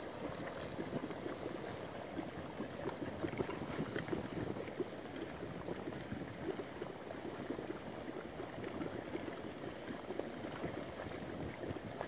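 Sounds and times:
mud bubbling and plopping: 0.0s - 12.0s.

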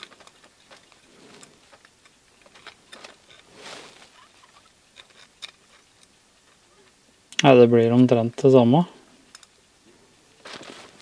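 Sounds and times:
soft rub: 2.9s - 4.7s.

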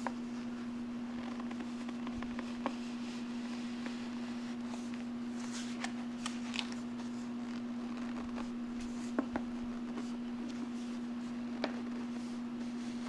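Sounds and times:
steady low hum: 0.0s - 13.0s
clicks and scrapes of paper and plastic: 1.1s - 2.8s, 3.7s - 10.8s.

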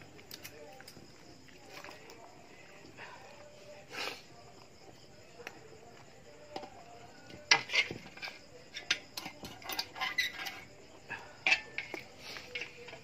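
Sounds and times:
metal ladle scraping a pot: 7.3s - 13.0s.

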